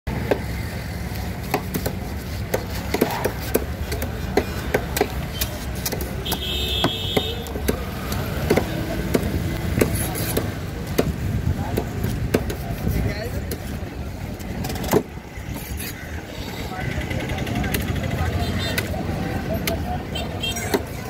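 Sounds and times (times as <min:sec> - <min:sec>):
street traffic hum: 0:00.1 - 0:21.0
knife chopping on wooden board: 0:01.4 - 0:12.6.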